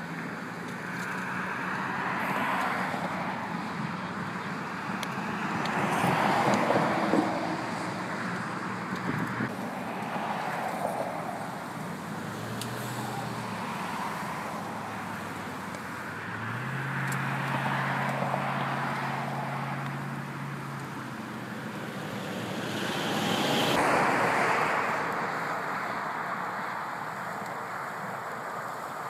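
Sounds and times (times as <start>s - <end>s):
engine drone: 0.0s - 29.0s
highway traffic passing: 0.0s - 29.0s.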